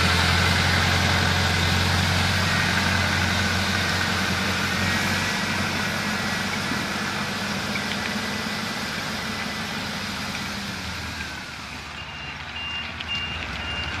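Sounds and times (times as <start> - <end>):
tractor engine running: 0.0 - 14.0
electronic warning beeps: 12.0 - 14.0.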